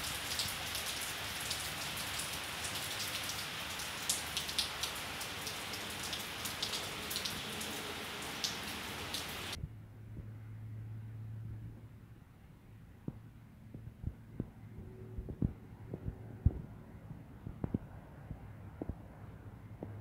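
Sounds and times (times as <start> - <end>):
rain falling: 0.0 - 9.6
raindrops ticking: 0.0 - 9.6, 13.0 - 20.0
low steady hum: 9.6 - 20.0.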